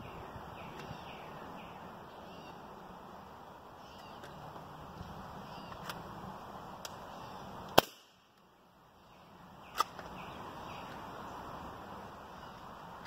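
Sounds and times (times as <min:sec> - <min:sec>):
air rifle shot crack: 0:07.8 - 0:08.2.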